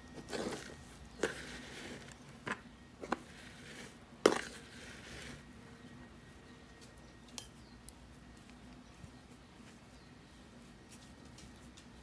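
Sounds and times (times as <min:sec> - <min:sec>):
potting soil rustling and pattering: 0:00.0 - 0:05.6.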